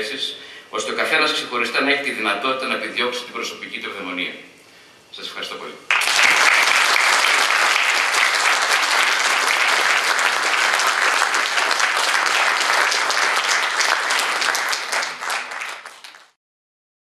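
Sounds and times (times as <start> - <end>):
audience applause: 5.9 - 16.4.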